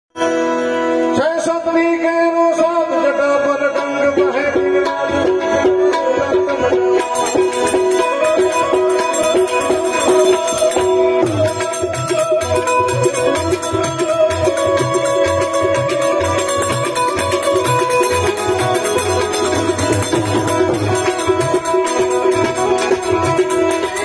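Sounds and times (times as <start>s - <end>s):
harmonium melody: 0.1s - 24.0s
tabla strokes: 3.5s - 24.0s
hand cymbals striking: 6.9s - 24.0s.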